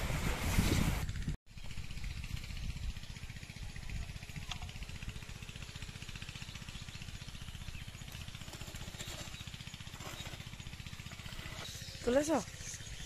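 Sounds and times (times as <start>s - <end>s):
hoe scraping dry soil: 0.0s - 1.1s, 5.3s - 13.0s.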